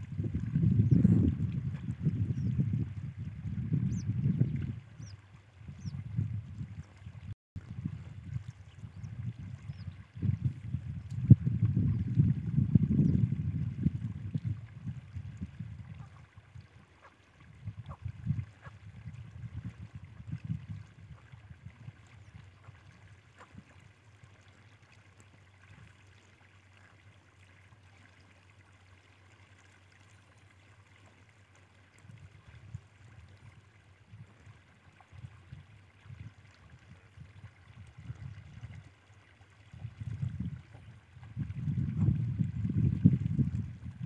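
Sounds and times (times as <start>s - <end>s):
wind buffeting microphone: 0.0s - 23.8s, 32.0s - 39.0s, 39.6s - 44.0s.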